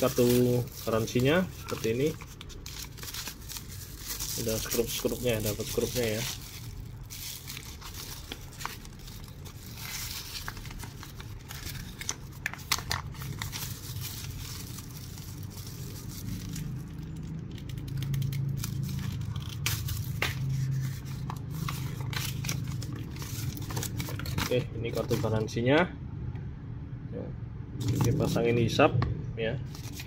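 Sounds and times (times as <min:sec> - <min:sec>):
paper rustling: 0:00.0 - 0:16.8, 0:18.5 - 0:25.5, 0:29.7 - 0:30.0
plastic bag tearing and crinkling: 0:00.0 - 0:25.5.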